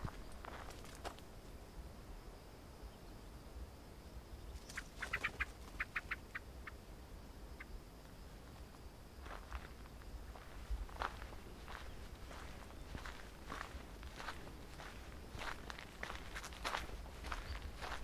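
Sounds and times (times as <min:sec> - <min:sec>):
footsteps on dirt track: 0:00.0 - 0:01.3, 0:08.1 - 0:18.0.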